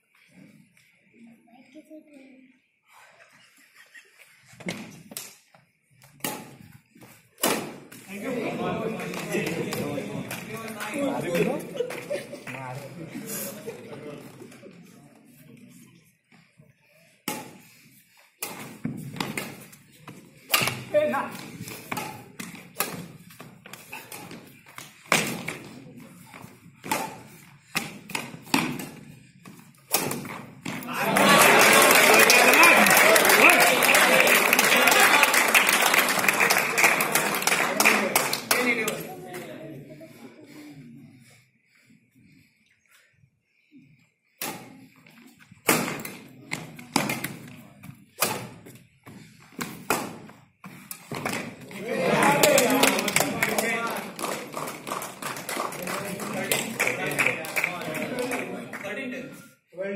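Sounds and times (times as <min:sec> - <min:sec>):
racquets hitting shuttlecock: 0:06.0 - 0:08.2, 0:17.2 - 0:17.8, 0:18.4 - 0:31.0, 0:44.4 - 0:44.9, 0:45.6 - 0:53.4
racket striking shuttlecock: 0:06.2 - 0:06.7, 0:17.2 - 0:17.7, 0:18.4 - 0:19.7, 0:20.5 - 0:23.2, 0:26.8 - 0:29.1, 0:29.8 - 0:30.8, 0:44.4 - 0:44.8, 0:48.2 - 0:48.6.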